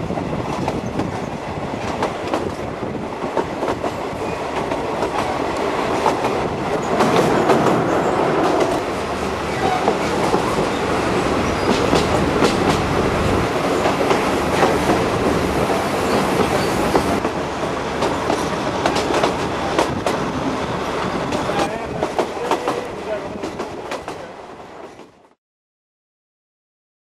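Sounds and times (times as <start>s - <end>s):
train rumble and rattle: 0.0s - 25.4s
wheels clacking over rail joints: 0.5s - 20.4s.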